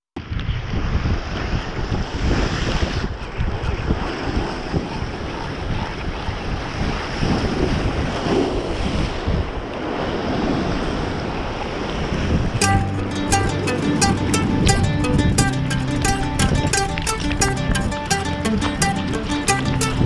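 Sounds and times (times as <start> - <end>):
ocean waves breaking on rocks: 0.2 - 12.6
wind buffeting microphone: 0.2 - 12.6, 13.4 - 20.0.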